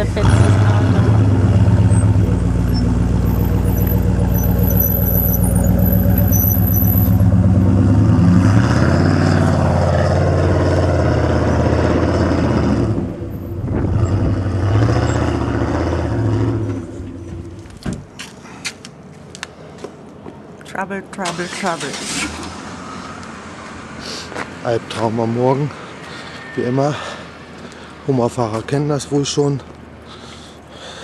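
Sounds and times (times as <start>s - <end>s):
engine pulling under load: 0.0s - 17.7s.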